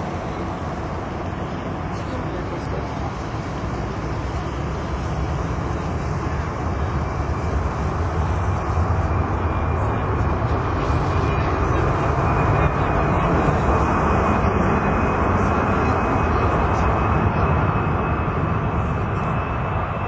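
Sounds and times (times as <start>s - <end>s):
jet engines deep rumble: 0.0s - 20.0s.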